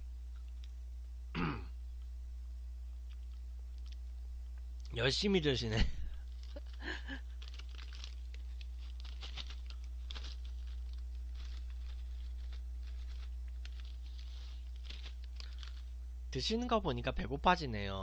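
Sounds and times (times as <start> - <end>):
steady low hum: 0.0 - 18.0
plastic snack bag crackling: 6.2 - 16.0.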